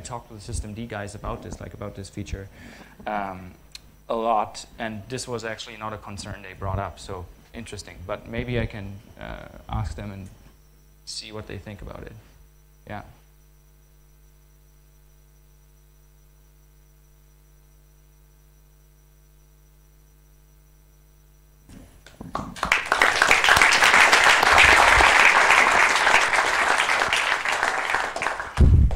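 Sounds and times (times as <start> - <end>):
faint electrical hum: 0.0 - 28.9
audience applause: 22.3 - 28.9.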